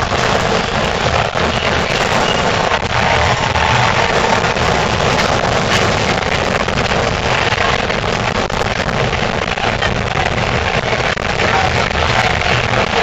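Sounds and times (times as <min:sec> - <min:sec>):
protest crowd din: 0:00.0 - 0:13.0.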